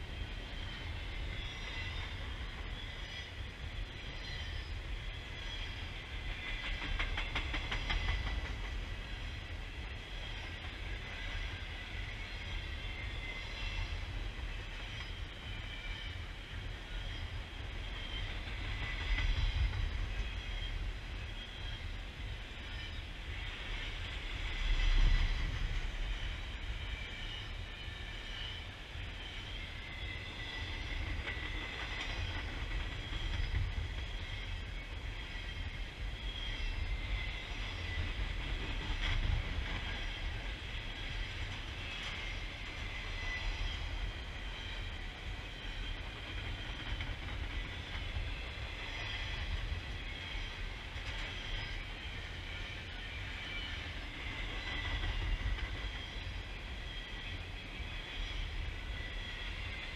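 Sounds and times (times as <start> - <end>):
train wheels rumbling on rail: 0.0 - 59.9.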